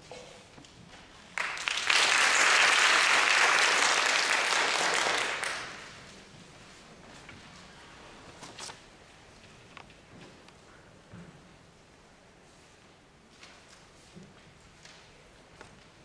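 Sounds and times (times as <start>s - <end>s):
audience applauding: 1.4s - 6.1s.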